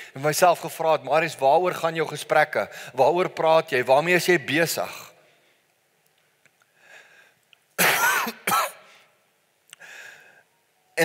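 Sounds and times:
man coughing: 7.8s - 8.9s
soft breaths: 8.9s - 10.6s.

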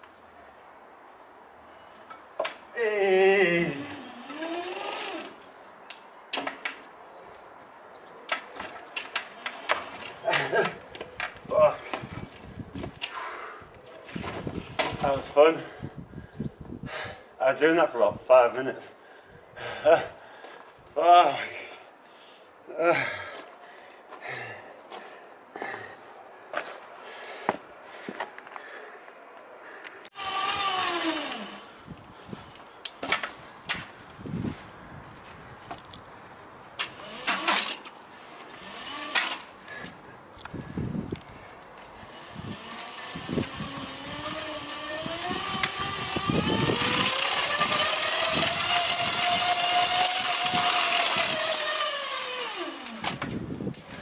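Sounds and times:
bike roller drums whirring: 3.6s - 5.5s, 30.1s - 34.6s, 41.8s - 54.0s
clicks and knocks from bike: 8.3s - 13.2s.

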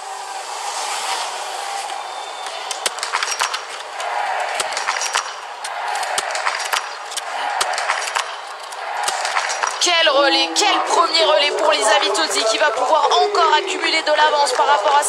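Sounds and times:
crowd hubbub: 0.0s - 15.0s
rifle shots: 2.8s - 9.9s.

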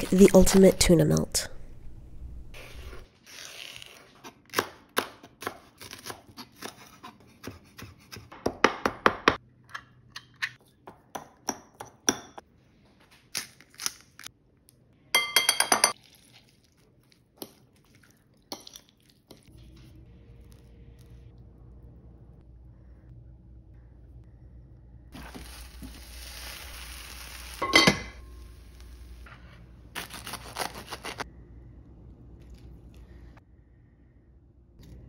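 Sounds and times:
faint steady hum: 19.6s - 25.1s.

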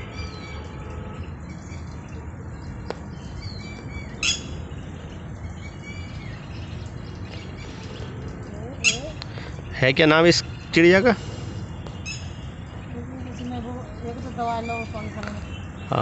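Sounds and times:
lapwing calling: 3.4s - 4.7s, 5.6s - 16.0s.

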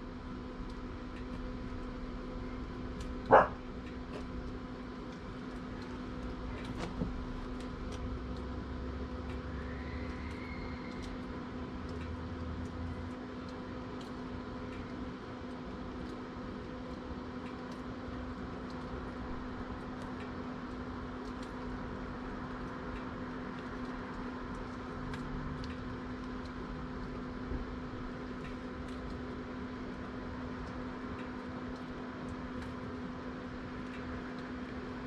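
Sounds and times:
steady mechanical hum: 0.0s - 35.0s
faint ticks: 9.2s - 21.7s, 22.6s - 27.7s, 28.3s - 29.3s, 30.6s - 32.8s.

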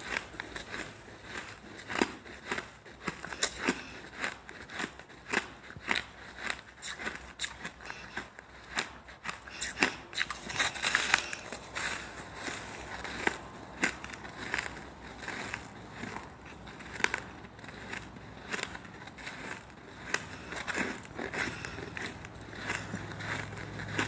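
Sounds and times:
crunching bites into shaved ice: 0.0s - 24.0s.

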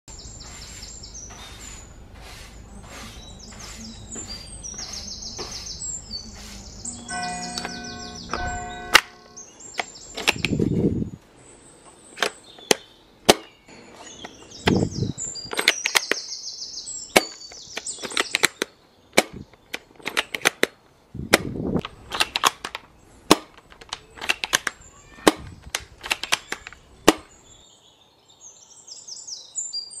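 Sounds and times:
toy rifle plastic clacks: 9.8s - 10.6s, 15.5s - 16.2s, 17.2s - 27.3s
plastic rasps: 17.2s - 27.3s.

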